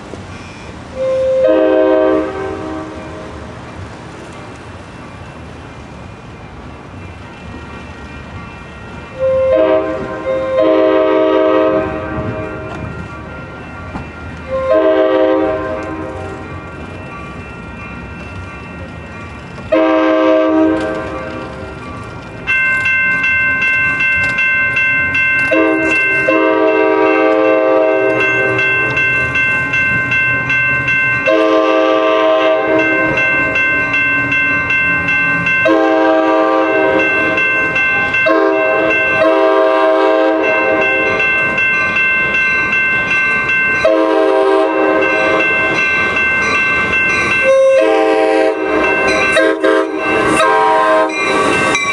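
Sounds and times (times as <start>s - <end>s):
train air horn blasts: 0.9s - 3.4s, 8.9s - 12.9s, 14.5s - 16.4s, 19.7s - 21.7s, 25.5s - 28.9s, 31.2s - 33.2s, 35.6s - 37.4s, 38.0s - 41.2s, 43.8s - 45.5s, 47.4s - 51.2s.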